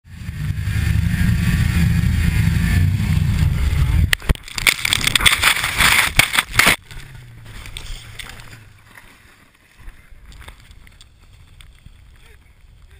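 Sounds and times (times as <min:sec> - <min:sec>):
snowmobile engine running hard: 0:00.1 - 0:04.2
snowmobile crashing: 0:00.4 - 0:09.1
rushing snow: 0:01.4 - 0:12.9.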